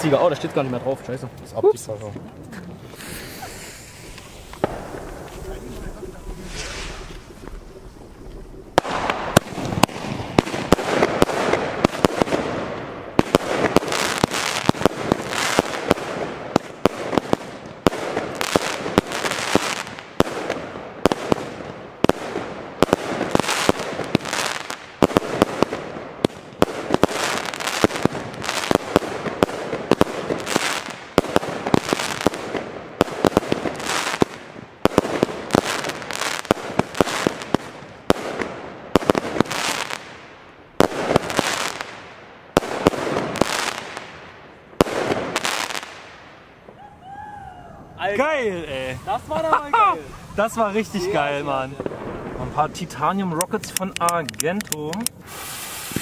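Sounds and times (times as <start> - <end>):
fireworks firing: 2.2 - 56.0
aerial firework bursts: 2.9 - 44.2, 55.2 - 56.0.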